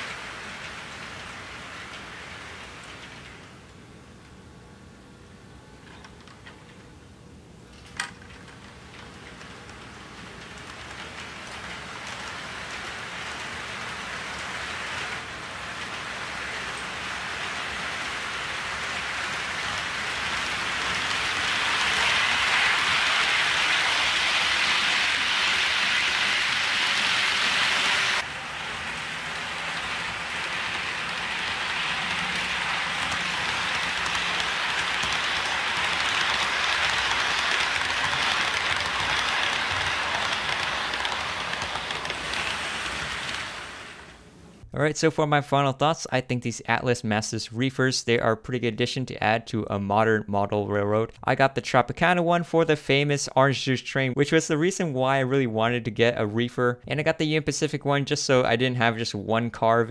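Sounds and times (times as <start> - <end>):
model train wheels hissing on rail: 9.7 - 44.3.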